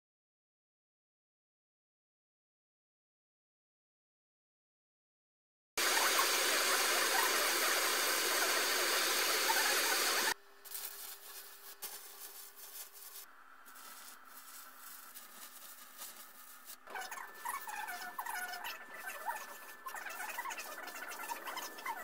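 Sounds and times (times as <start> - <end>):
gas torch flame hissing: 5.8 - 17.0
arc welding crackle: 5.8 - 22.0.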